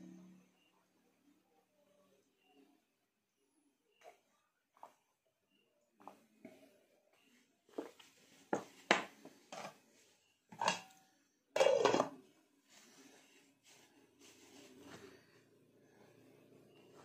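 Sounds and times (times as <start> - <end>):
glassware and kitchenware clinking: 10.5 - 11.0, 11.6 - 12.2.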